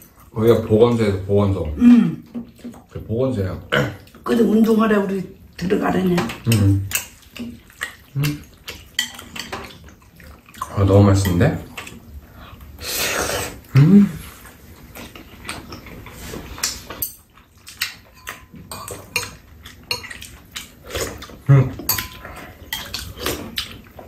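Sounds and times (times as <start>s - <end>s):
utensils clicking against bowls: 21.8s - 23.8s.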